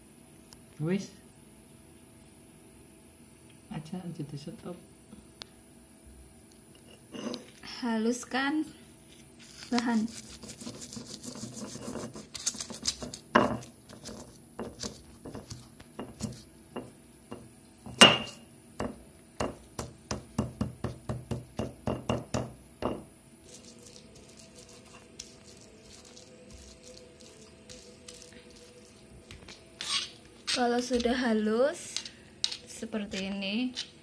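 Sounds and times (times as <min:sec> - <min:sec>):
stone pestle pounding in mortar: 0:13.0 - 0:23.1.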